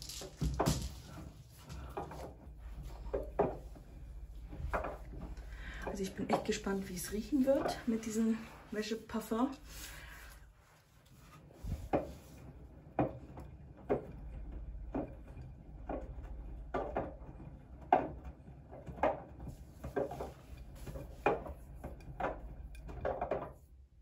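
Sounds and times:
washing machine drum sloshing: 0:00.8 - 0:23.7
low motor hum: 0:01.0 - 0:09.8, 0:11.5 - 0:18.7.

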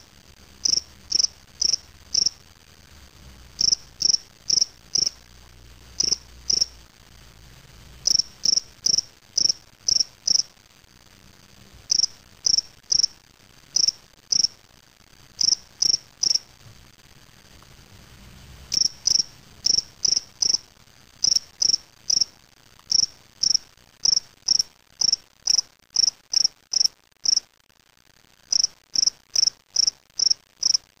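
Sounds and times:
cricket chirping: 0:00.6 - 0:02.4, 0:03.6 - 0:05.2, 0:06.0 - 0:06.8, 0:08.0 - 0:10.5, 0:11.9 - 0:14.6, 0:15.4 - 0:16.5, 0:18.7 - 0:27.4, 0:28.5 - 0:30.9.

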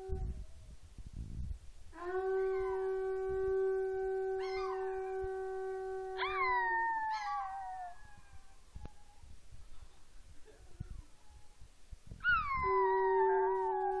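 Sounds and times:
conch shell trumpet note: 0:02.0 - 0:06.2
dog howling: 0:02.0 - 0:09.2, 0:12.2 - 0:14.0.

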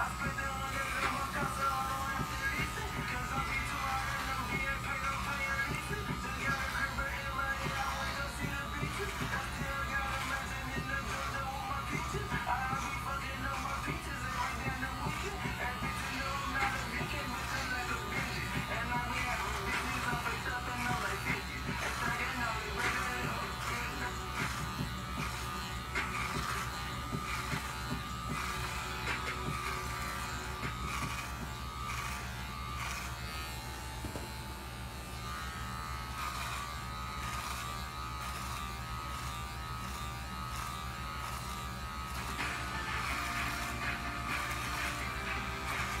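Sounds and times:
background music: 0:00.0 - 0:32.2, 0:42.3 - 0:46.0
electric hair clippers buzzing: 0:00.0 - 0:46.0.

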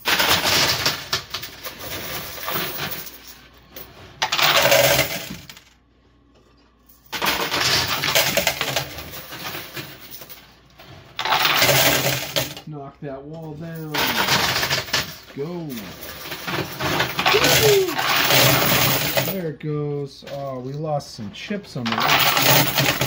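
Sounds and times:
coins clattering into coin pusher: 0:00.0 - 0:05.7, 0:07.0 - 0:10.5, 0:11.1 - 0:12.6, 0:13.7 - 0:19.4, 0:21.8 - 0:23.0.

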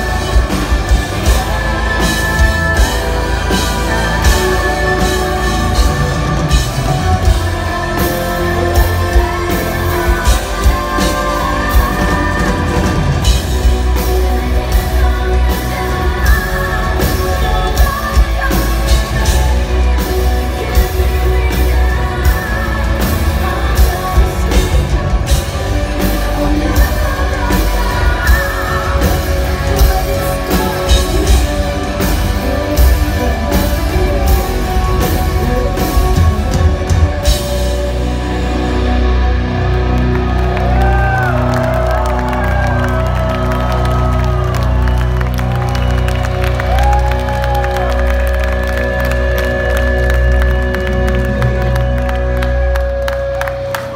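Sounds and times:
woman singing lead vocals: 0:00.0 - 0:39.6
pounding drum kit: 0:00.0 - 0:53.9.

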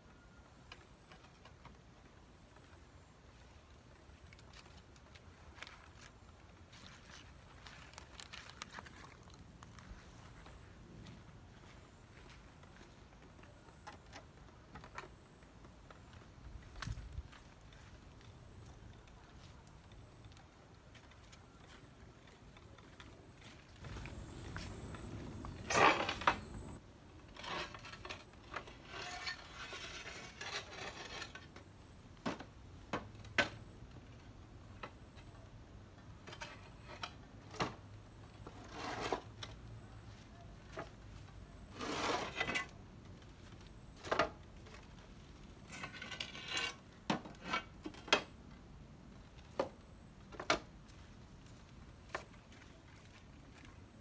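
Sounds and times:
scraping of wooden planks: 0:23.8 - 0:31.6, 0:38.4 - 0:39.5, 0:41.7 - 0:42.7, 0:45.6 - 0:48.3.

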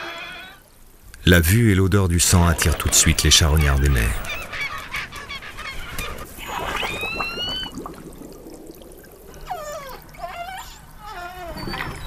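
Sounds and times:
underwater water noise: 0:00.6 - 0:12.0
killer whale calls: 0:02.5 - 0:12.0.

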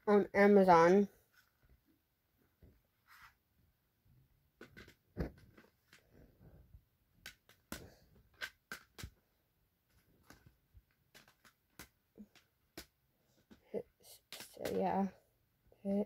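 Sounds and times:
small objects clicking and knocking: 0:07.2 - 0:09.2, 0:09.9 - 0:13.6.

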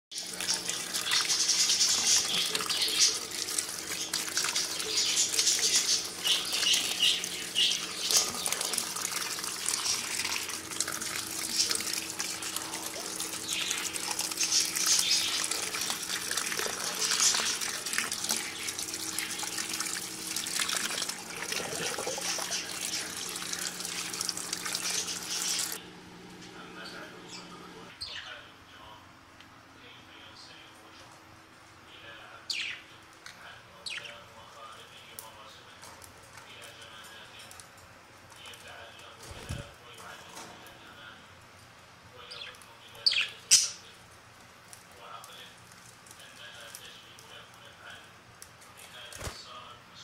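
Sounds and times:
tap water splashing over lettuce: 0:00.2 - 0:25.8
faint steady hum: 0:00.2 - 0:50.0.

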